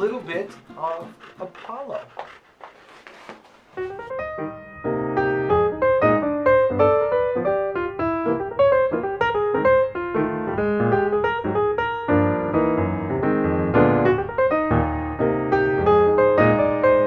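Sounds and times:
piano music: 3.8s - 17.0s.

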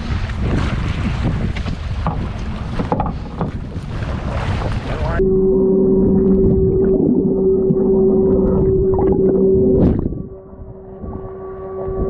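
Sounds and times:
wind and water rushing: 0.0s - 12.0s
muffled underwater hum: 4.8s - 12.0s.

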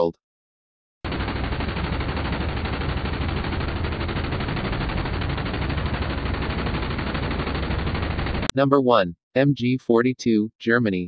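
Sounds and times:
rotary machine gun firing: 1.0s - 8.5s.

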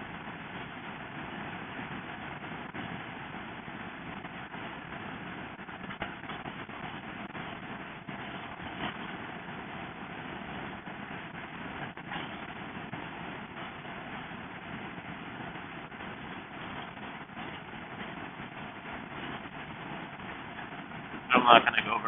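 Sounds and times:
wind and road noise: 0.0s - 22.0s
wind buffets: 0.0s - 22.0s.

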